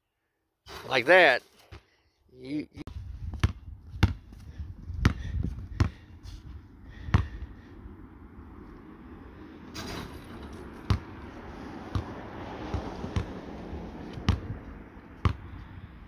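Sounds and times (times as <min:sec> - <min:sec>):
basketball bouncing on asphalt: 0:03.2 - 0:07.7, 0:10.2 - 0:16.0.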